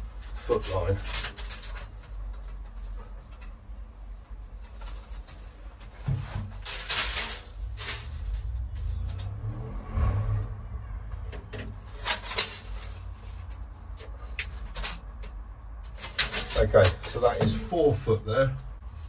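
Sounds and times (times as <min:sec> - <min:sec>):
low rumble: 0:07.5 - 0:12.0.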